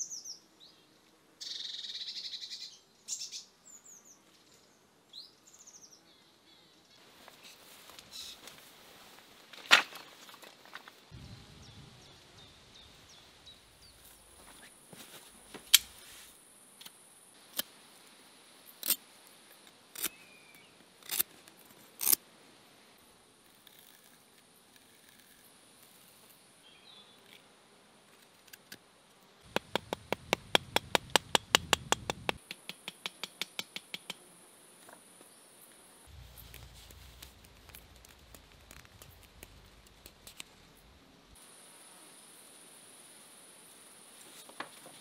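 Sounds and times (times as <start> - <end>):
high insect buzz: 11.0 - 45.0.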